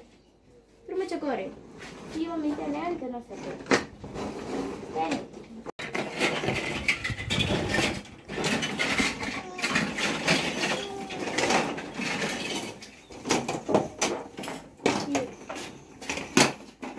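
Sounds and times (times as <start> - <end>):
plastic toy train clattering: 5.8 - 16.9
children's voices: 9.2 - 11.7.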